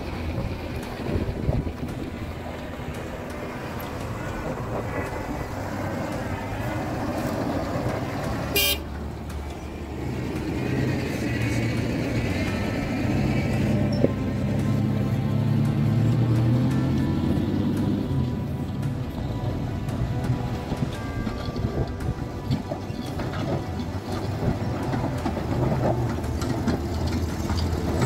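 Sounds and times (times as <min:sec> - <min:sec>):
truck engine under load: 0:00.0 - 0:28.0
short horn toot: 0:08.6 - 0:08.8.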